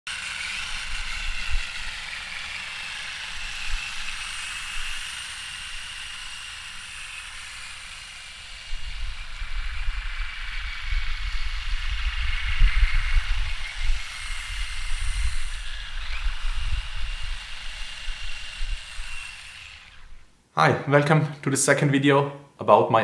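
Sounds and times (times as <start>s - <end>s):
electric motors whining: 0.1s - 20.3s
wind rumble on microphone: 8.7s - 19.2s.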